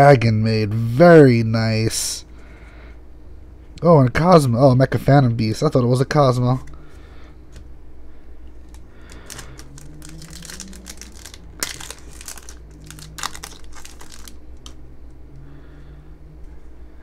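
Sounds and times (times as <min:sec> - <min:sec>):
foil pack crinkling and tearing: 0:08.6 - 0:14.8.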